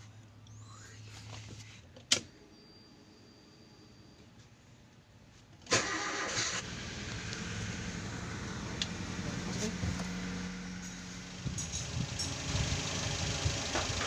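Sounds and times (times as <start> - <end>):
car engine cranking and running: 5.6 - 14.0.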